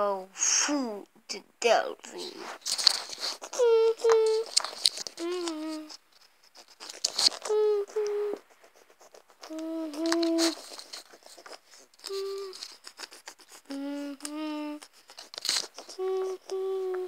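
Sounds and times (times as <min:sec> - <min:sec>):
small clicks and rustles: 0:02.1 - 0:17.0
person humming: 0:03.3 - 0:06.0, 0:07.2 - 0:08.5, 0:09.4 - 0:10.9, 0:12.0 - 0:15.0, 0:15.7 - 0:17.0.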